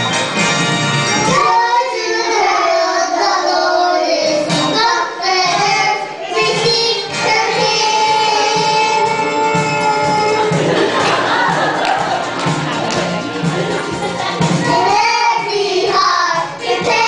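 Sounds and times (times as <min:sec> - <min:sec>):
children's choir singing: 0:01.1 - 0:17.0.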